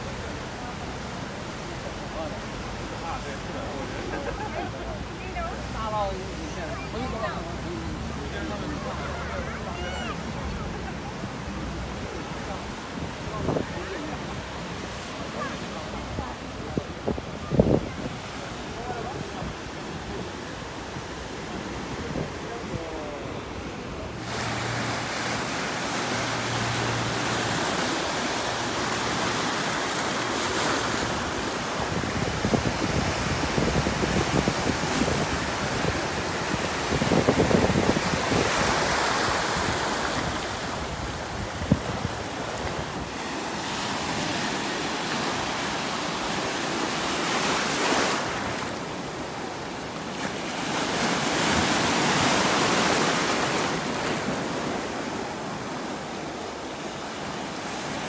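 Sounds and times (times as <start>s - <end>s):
waves breaking: 0.0s - 58.0s
wind buffeting microphone: 16.0s - 23.6s, 31.2s - 43.2s.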